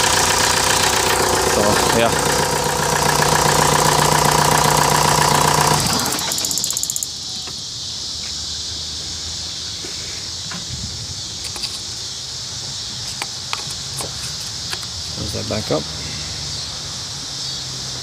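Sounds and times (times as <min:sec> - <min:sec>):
diesel engine running: 0:00.0 - 0:07.2
high insect buzz: 0:06.0 - 0:15.3.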